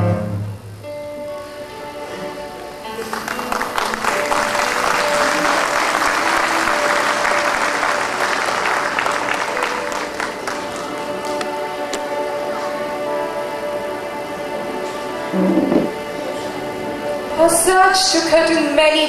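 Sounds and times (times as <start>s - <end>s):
soft background music: 0.0s - 19.0s
audience applauding: 2.9s - 12.8s.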